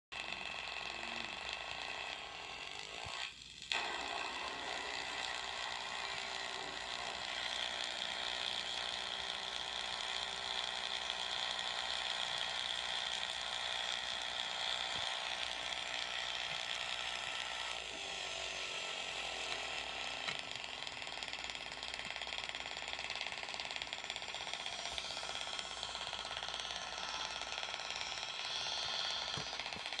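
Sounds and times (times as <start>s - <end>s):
electric arcs crackling buzz: 23.3s - 30.0s.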